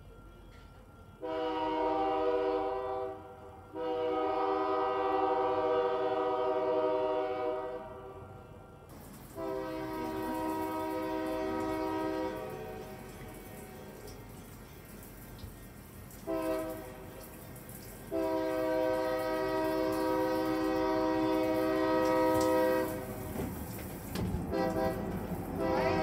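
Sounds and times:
low train rumble: 0:00.0 - 0:26.0
locomotive air horn blasts: 0:01.2 - 0:08.7, 0:09.3 - 0:14.0, 0:16.2 - 0:17.2, 0:18.0 - 0:23.4, 0:24.5 - 0:26.0.

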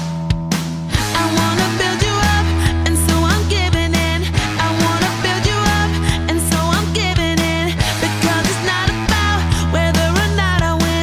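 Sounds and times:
drum beat: 0:00.0 - 0:05.3
person singing: 0:01.0 - 0:11.0.

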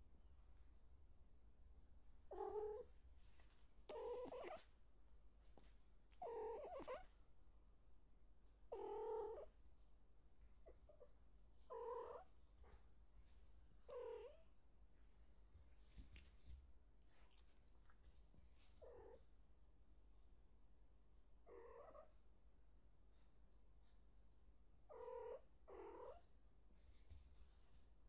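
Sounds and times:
cat meowing: 0:03.9 - 0:04.6, 0:06.2 - 0:07.1.

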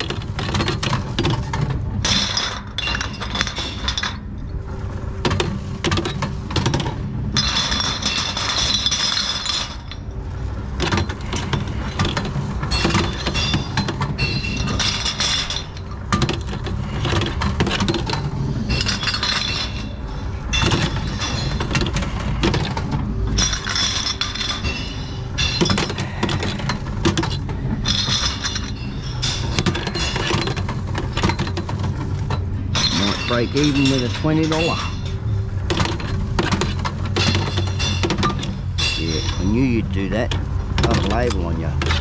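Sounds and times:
glass bottles clinking: 0:00.0 - 0:42.0
machine low rumble: 0:00.0 - 0:42.0.

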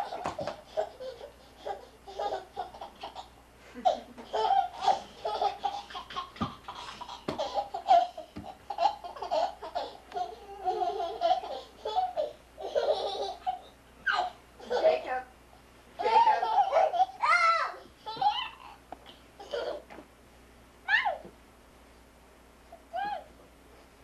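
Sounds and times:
small children laughing: 0:00.0 - 0:15.0, 0:16.0 - 0:19.9
children making playful voice sounds: 0:16.0 - 0:18.8.

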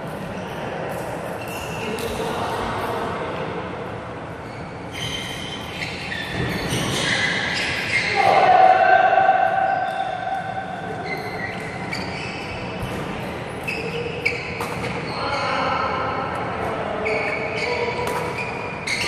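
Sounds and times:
shoes squeaking on wooden floor: 0:04.4 - 0:08.2, 0:11.0 - 0:15.4, 0:17.0 - 0:19.0
rackets striking shuttlecock: 0:12.8 - 0:15.1, 0:17.9 - 0:19.0.

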